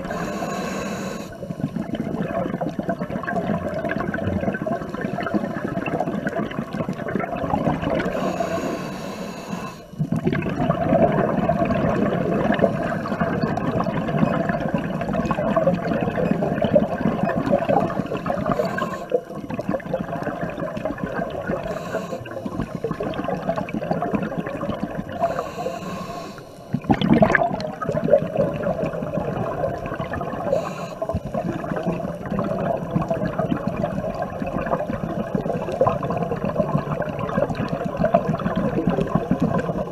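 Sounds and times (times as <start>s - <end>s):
regulator inhalation hiss: 0.0s - 1.4s, 8.1s - 10.0s, 17.9s - 19.3s, 21.6s - 22.9s, 25.2s - 26.8s, 30.5s - 31.3s
exhaled air bubbling underwater: 0.0s - 39.9s.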